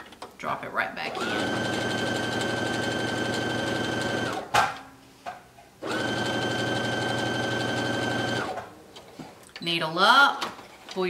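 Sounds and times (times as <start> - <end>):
sewing machine running: 1.1 - 4.4, 5.8 - 8.6.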